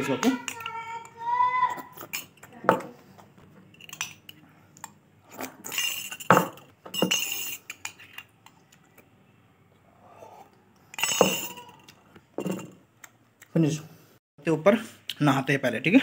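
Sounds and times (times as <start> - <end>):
spoon clinking against ceramic mug: 5.6 - 8.6, 10.9 - 12.8.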